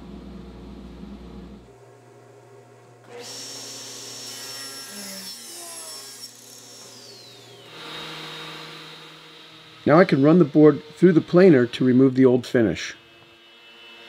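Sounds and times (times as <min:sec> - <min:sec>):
saw motor whining: 0:03.0 - 0:14.0
table saw cutting board: 0:03.1 - 0:14.0.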